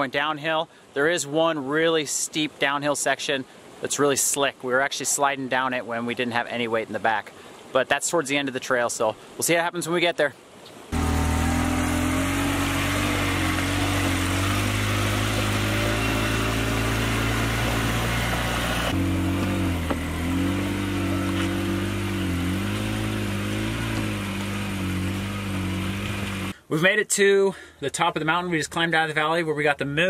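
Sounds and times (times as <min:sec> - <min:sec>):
off-road vehicle engine under load: 0:10.9 - 0:26.6.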